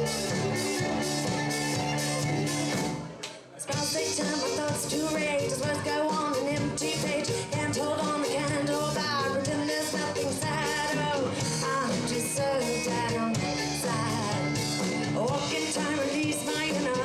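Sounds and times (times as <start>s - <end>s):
electric bass: 0.0s - 3.2s, 3.8s - 17.0s
keyboard: 0.0s - 17.0s
woman singing: 3.6s - 17.0s.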